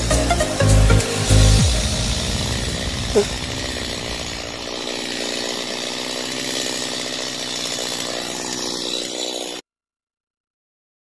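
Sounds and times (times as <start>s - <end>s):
chainsaw running: 0.0s - 9.6s.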